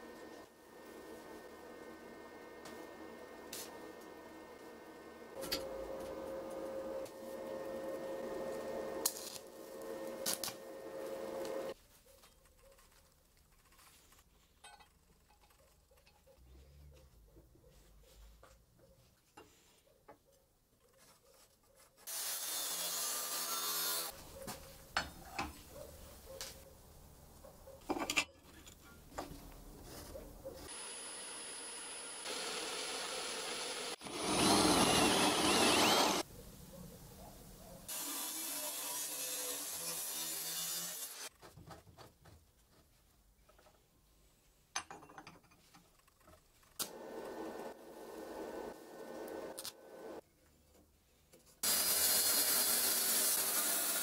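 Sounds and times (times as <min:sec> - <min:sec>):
angle grinder grinding steel: 0:30.7 - 0:36.2
metal parts clattering on wooden bench: 0:44.8 - 0:46.0.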